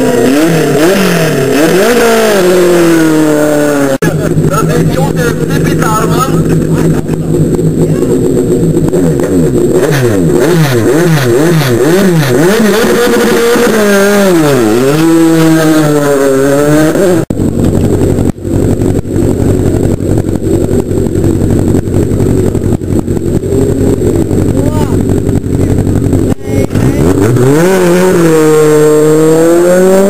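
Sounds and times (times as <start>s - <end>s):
race car engine revving: 0.0s - 30.0s
race car engine rough idle: 4.0s - 13.7s, 17.3s - 27.6s.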